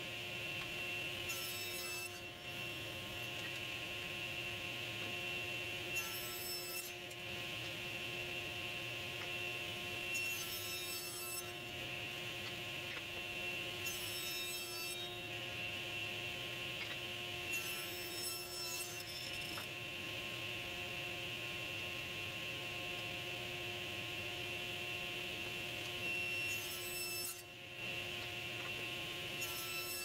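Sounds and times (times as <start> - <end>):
table saw running: 0.4 - 19.8, 25.2 - 30.0
saw blade whining through wood: 25.9 - 30.0.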